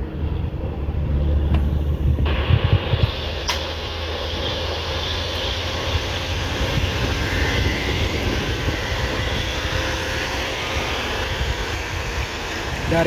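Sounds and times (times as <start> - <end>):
bus diesel engine: 0.0 - 13.0
motor scooters passing: 4.1 - 13.0.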